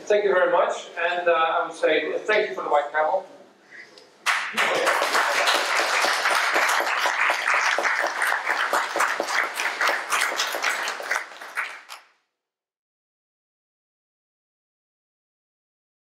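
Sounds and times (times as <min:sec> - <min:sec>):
audience applauding: 0:04.2 - 0:12.1.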